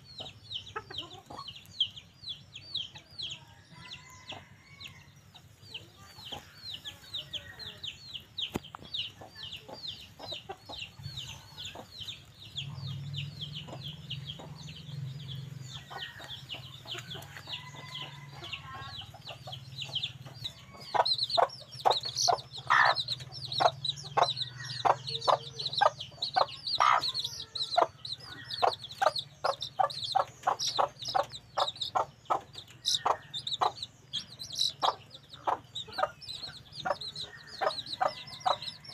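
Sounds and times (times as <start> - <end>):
junglefowl clucking: 21.9 - 23.7, 24.3 - 33.8.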